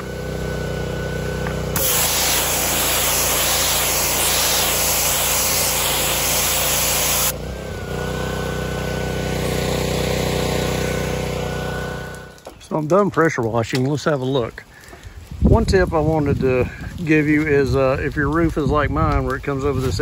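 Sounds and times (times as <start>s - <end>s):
pressure washer running: 0.0s - 12.5s
water spray hissing on roof: 1.8s - 7.4s.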